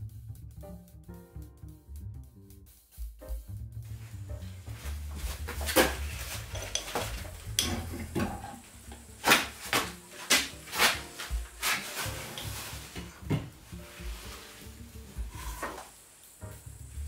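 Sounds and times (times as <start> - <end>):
metal clanks and knocks: 5.5 - 9.1.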